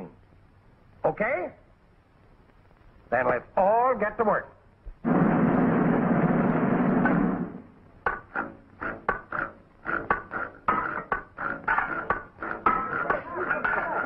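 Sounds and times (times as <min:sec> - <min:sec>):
dense rush of noise: 0:01.9 - 0:08.1.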